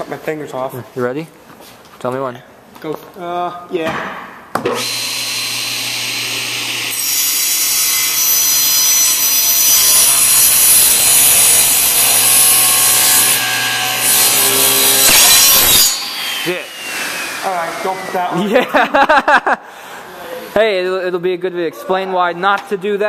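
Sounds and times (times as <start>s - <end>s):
table saw cutting plywood: 4.7s - 18.4s.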